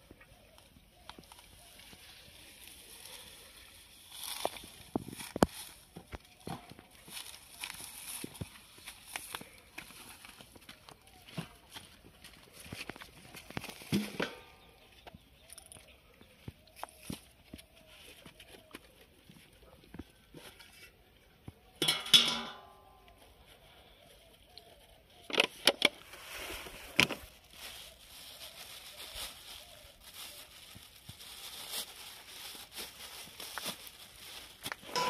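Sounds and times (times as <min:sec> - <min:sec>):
plastic bag crinkling: 0:26.0 - 0:35.0.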